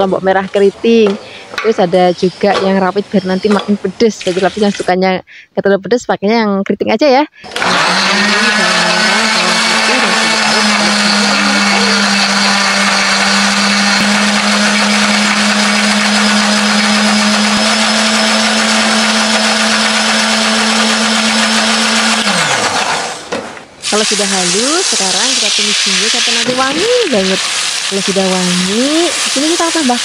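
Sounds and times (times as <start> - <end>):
blender motor grinding: 7.4 - 30.0.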